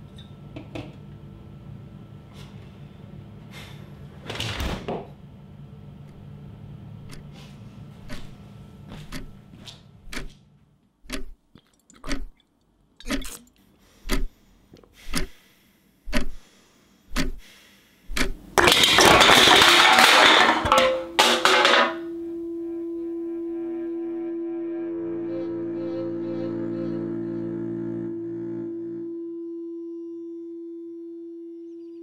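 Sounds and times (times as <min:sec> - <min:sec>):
clock ticking: 0:11.0 - 0:11.4
low drone tone: 0:22.0 - 0:32.0.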